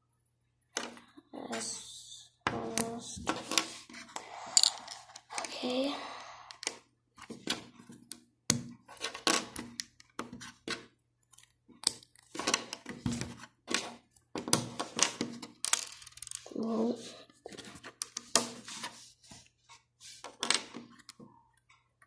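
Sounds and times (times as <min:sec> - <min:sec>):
plastic bricks clicking and snapping: 0:06.5 - 0:16.6.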